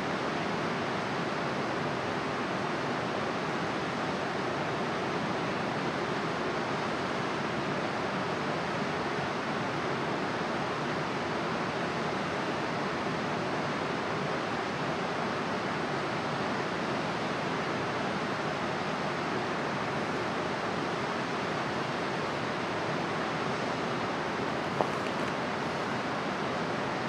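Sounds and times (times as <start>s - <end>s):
running water rushing: 20.0s - 27.0s.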